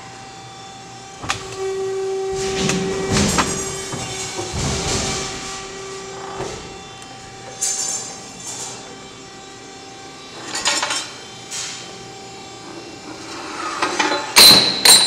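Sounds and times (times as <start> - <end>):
machine motor humming: 0.0 - 13.8
loud metal clank: 2.3 - 6.8, 14.4 - 15.0
steel bars clanking on steel plate: 14.0 - 15.0.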